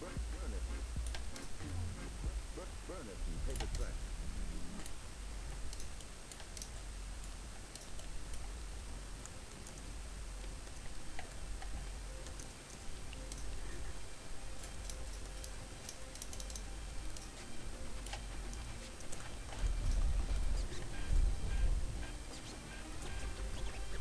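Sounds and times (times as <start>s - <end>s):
low hum and hiss: 0.0s - 24.0s
mouse and keyboard clicks: 14.7s - 17.4s.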